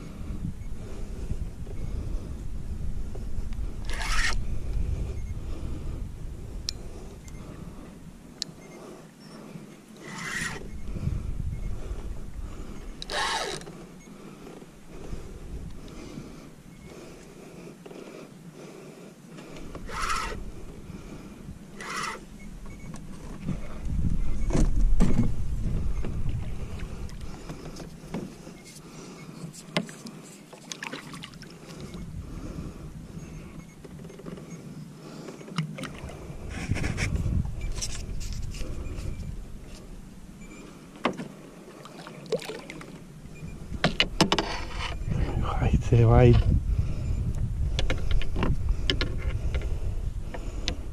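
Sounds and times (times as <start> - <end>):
water lapping against hull: 8.6 - 45.5
low water surges: 41.3 - 43.8.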